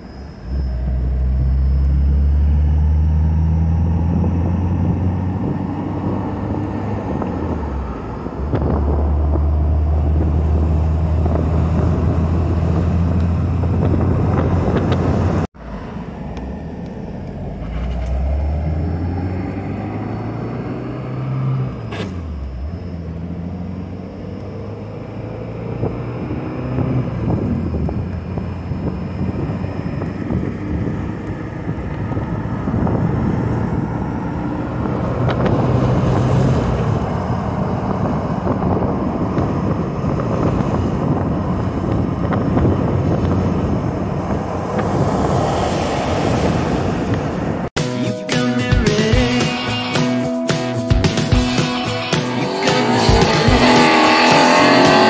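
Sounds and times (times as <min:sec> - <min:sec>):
car engine revving: 0:00.4 - 0:47.8, 0:50.0 - 0:55.0.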